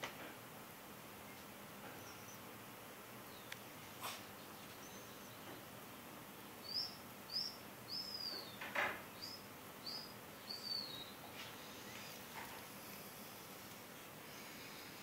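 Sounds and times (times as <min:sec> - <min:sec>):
small bird chirping: 0:01.2 - 0:02.5, 0:03.3 - 0:05.7, 0:06.6 - 0:12.4.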